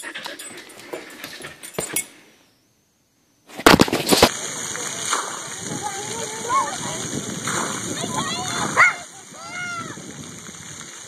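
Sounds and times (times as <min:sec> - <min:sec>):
water bucket crashing down: 0:03.6 - 0:10.8
spraying water hiss: 0:04.1 - 0:11.0.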